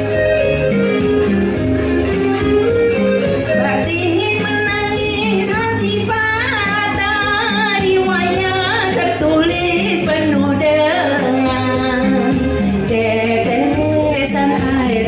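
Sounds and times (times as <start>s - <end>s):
instrumental accompaniment with bass: 0.0s - 15.0s
woman singing into microphone: 3.4s - 15.0s.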